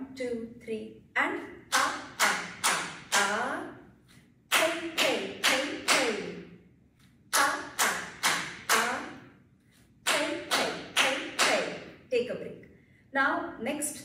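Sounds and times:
person speaking rhythm syllables: 1.2 - 3.8, 4.5 - 6.5, 7.3 - 9.3, 10.1 - 12.5.

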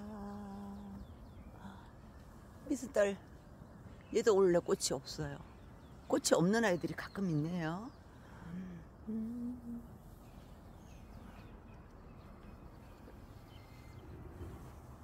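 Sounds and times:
woman humming: 0.0 - 1.1, 8.5 - 10.0.

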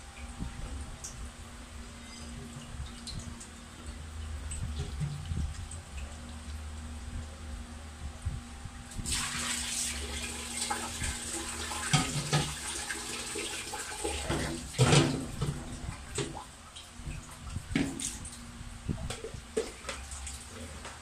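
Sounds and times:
water splashing into steel sink: 9.0 - 18.4.

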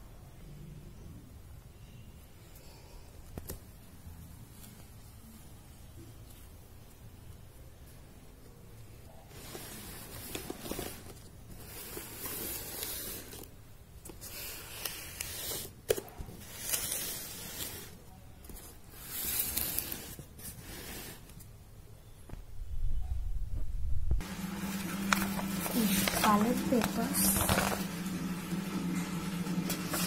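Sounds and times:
paper rustling: 9.3 - 21.4, 24.3 - 30.0.

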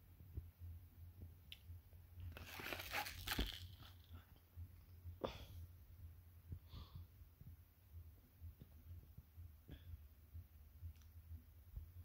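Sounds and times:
plastic blister pack crinkling: 2.2 - 4.1
plastic crackle: 2.2 - 4.1.

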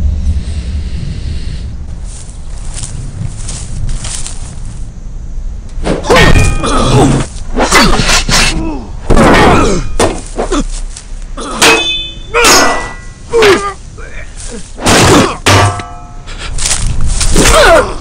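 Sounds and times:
weapons thudding on shields: 5.8 - 10.5, 11.5 - 13.6, 14.8 - 16.1
men grunting and yelling: 6.0 - 10.8, 11.4 - 15.4, 17.4 - 18.0.

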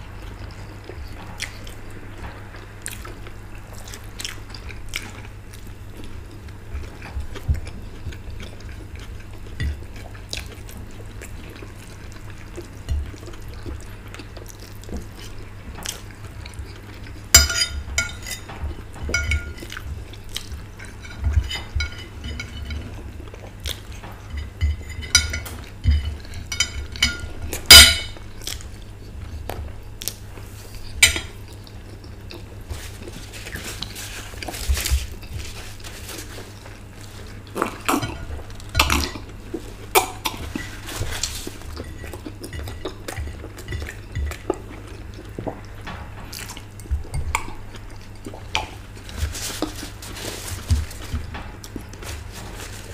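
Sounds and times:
cutlery scraping on plates: 15.1 - 28.2, 30.7 - 31.4, 37.0 - 39.3
crockery clinking: 17.3 - 28.2.

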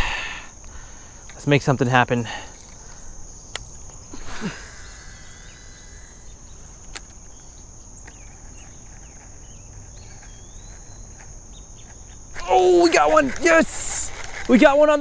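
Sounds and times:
high insect buzz: 0.0 - 15.0
reel spool whirring: 8.0 - 15.0.

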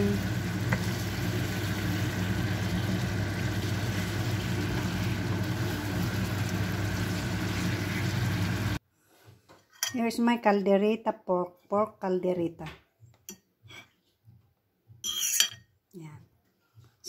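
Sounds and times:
food sizzling in frying pan: 0.0 - 8.8
low machine hum: 0.0 - 8.8
wooden spatula stirring: 0.5 - 8.8.

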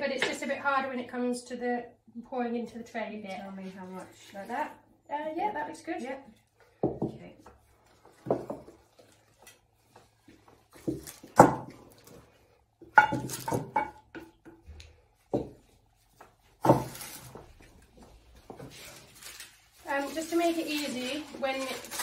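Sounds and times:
wooden spoons knocking ceramic bowls: 6.7 - 12.0, 12.8 - 17.0.

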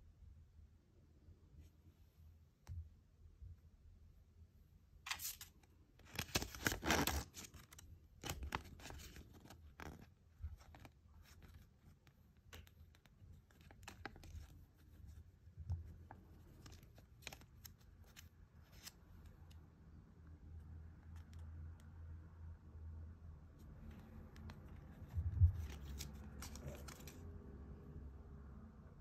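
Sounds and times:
paper leaflet rustling and crinkling: 5.1 - 11.7, 15.7 - 19.0, 23.9 - 27.2.

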